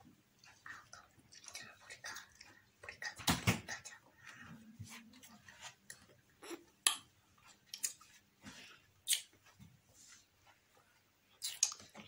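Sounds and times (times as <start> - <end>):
children chewing candy: 0.0 - 3.2, 5.1 - 9.6, 11.3 - 12.0
lip smacks: 9.0 - 9.4, 11.4 - 11.9.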